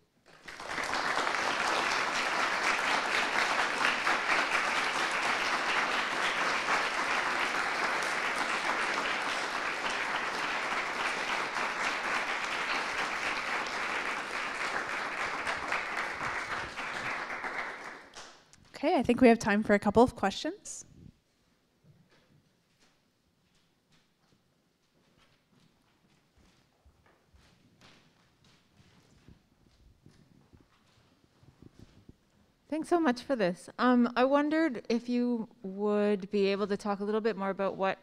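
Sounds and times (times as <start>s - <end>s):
audience applauding: 0.2s - 18.3s.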